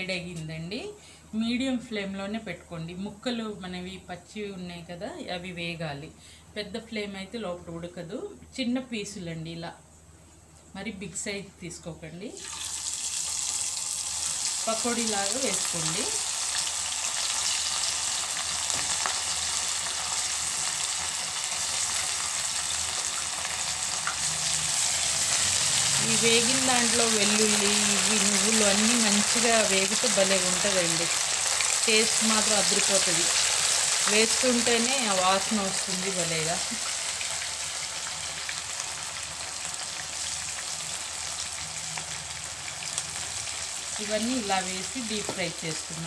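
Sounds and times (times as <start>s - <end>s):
chicken deep-frying in oil: 12.4s - 46.0s.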